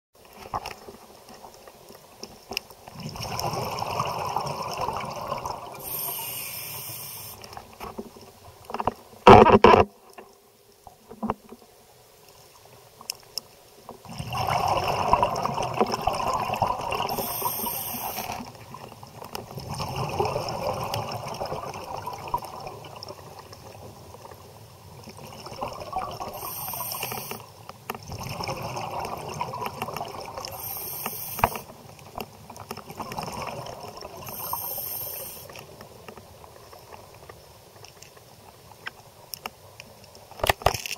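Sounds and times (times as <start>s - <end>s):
exhaled bubbles underwater: 2.9s - 6.6s, 14.0s - 24.0s, 25.1s - 27.4s, 28.0s - 31.6s, 32.8s - 35.4s
short high hiss: 5.8s - 7.5s, 17.1s - 18.4s, 26.4s - 27.4s, 30.6s - 31.6s, 34.3s - 35.5s.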